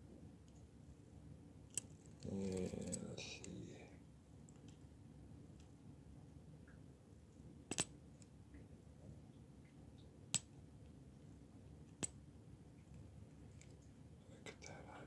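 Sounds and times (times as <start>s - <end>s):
metal watch links clinking: 1.7s - 3.2s.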